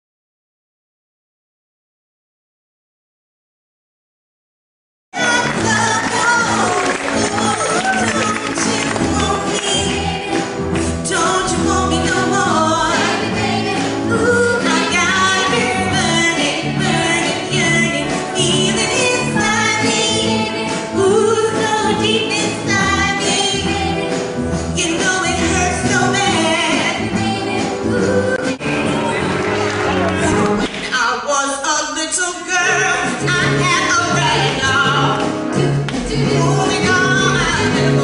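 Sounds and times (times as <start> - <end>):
women singing with backing singers: 5.2 - 29.4, 34.0 - 38.0
musical accompaniment with steady beat: 5.2 - 30.9, 32.8 - 38.0.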